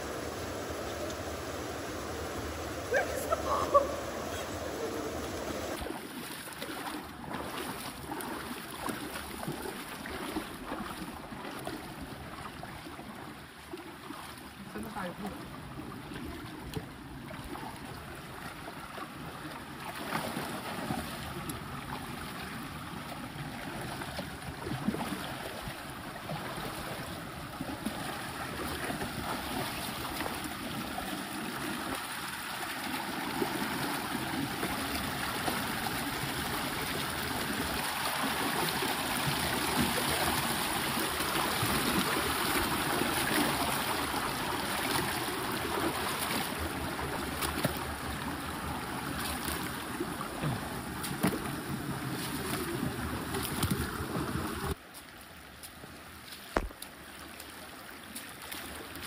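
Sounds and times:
river water rushing: 0.0 - 6.0, 24.5 - 54.8.

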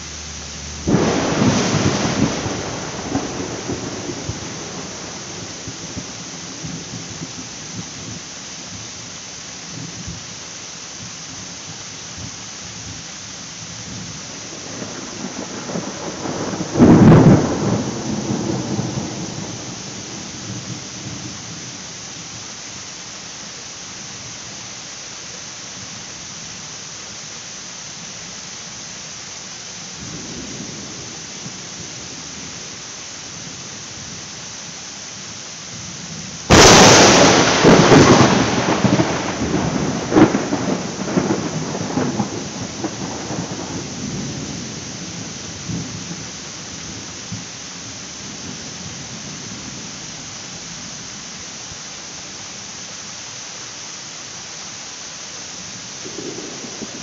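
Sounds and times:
heavy rain pouring: 0.0 - 57.0
thunder cracking and rumbling: 0.7 - 8.2, 13.9 - 21.3, 36.4 - 47.5, 56.0 - 57.0.

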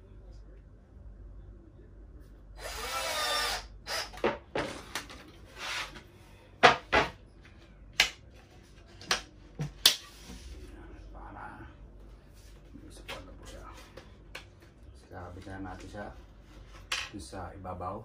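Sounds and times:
cordless drill driving screws: 2.6 - 4.2.

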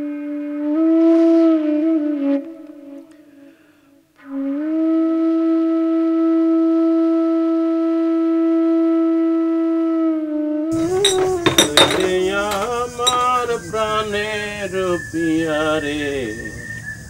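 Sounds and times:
flute holding a long note: 0.0 - 3.1, 4.2 - 10.6.

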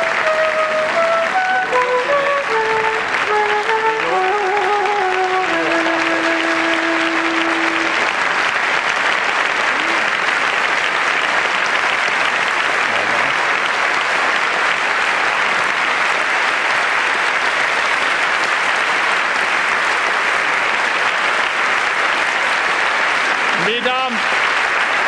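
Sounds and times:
audience applauding: 0.0 - 25.0.

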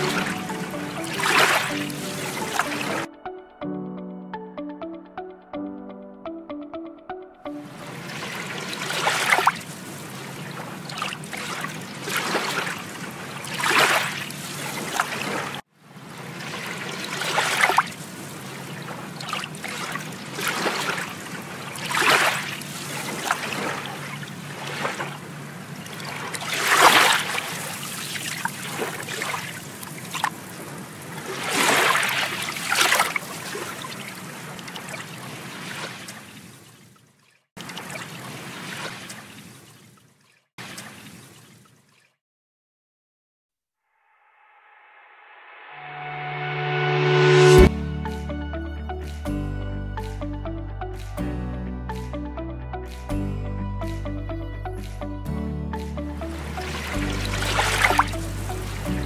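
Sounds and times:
water splashing and trickling: 0.0 - 3.1, 7.6 - 42.2, 55.8 - 59.0.

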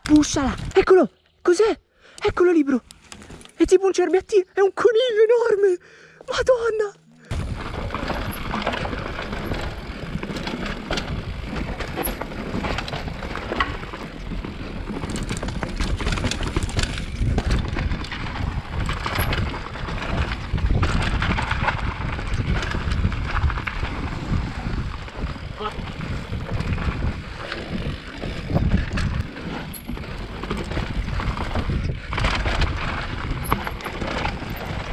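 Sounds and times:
bike rattling over bumps: 7.3 - 34.9
bike tyres rumbling on dirt: 7.3 - 34.9
wind on microphone: 15.8 - 34.9.

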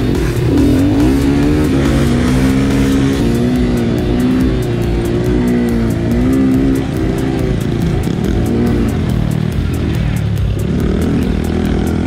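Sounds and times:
background music with beat: 0.0 - 12.0
motorcycle engines revving: 0.0 - 12.0.

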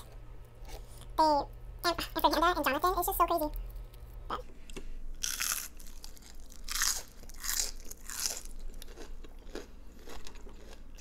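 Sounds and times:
onion ring crunching: 5.2 - 11.0.

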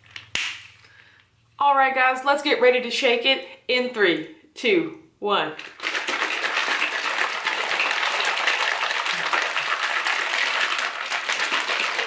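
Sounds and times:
shaker bottle sloshing and rattling: 5.6 - 12.0.

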